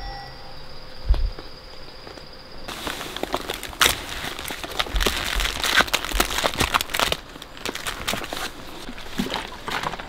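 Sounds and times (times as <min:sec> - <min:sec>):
crinkling and clicking: 0:02.7 - 0:10.0.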